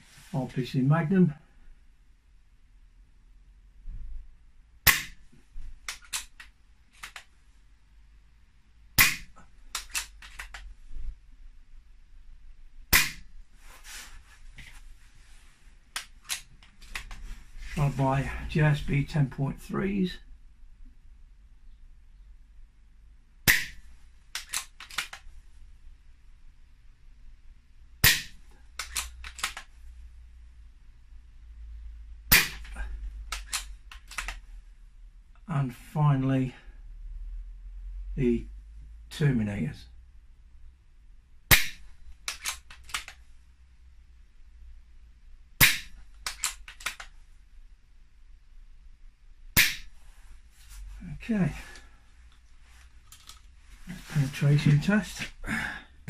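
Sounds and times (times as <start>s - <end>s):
air rifle shots hitting wood: 4.9s - 5.2s, 9.0s - 10.5s, 12.9s - 13.4s, 23.5s - 25.1s, 28.0s - 29.6s, 32.3s - 32.7s, 41.5s - 43.1s, 45.6s - 47.0s, 49.6s - 49.9s.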